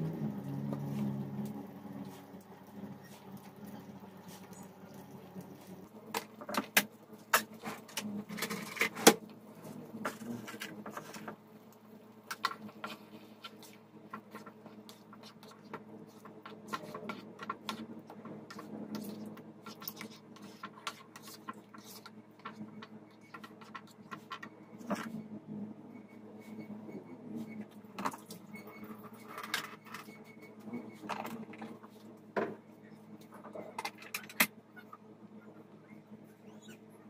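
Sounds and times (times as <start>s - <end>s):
low hum: 0.0s - 6.4s
spatula scraping sauce in pan: 12.3s - 25.1s.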